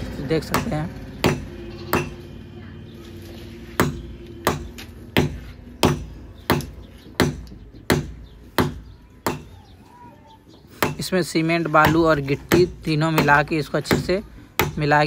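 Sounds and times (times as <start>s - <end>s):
sharp hammering knocks: 0.0s - 2.4s, 3.7s - 9.6s, 10.7s - 11.2s, 11.8s - 15.0s.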